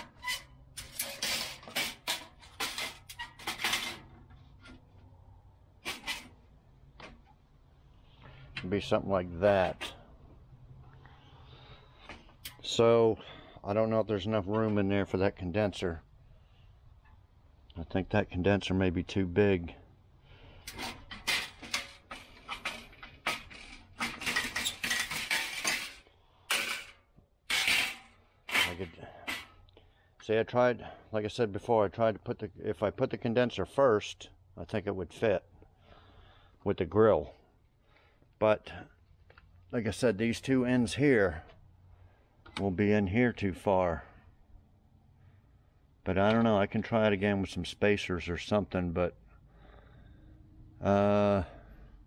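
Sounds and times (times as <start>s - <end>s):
metallic clinks and scrapes: 0.0s - 4.9s, 20.6s - 29.6s.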